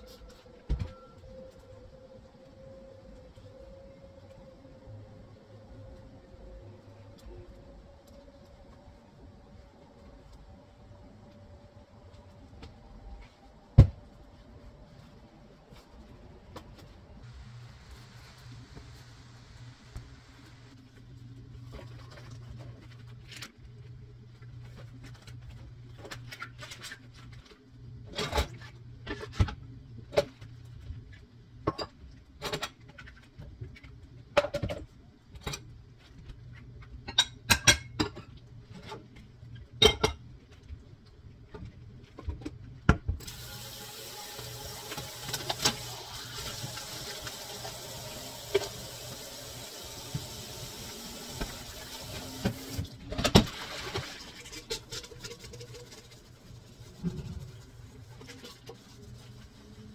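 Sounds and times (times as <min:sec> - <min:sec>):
tap running water into sink: 0:43.2 - 0:52.8.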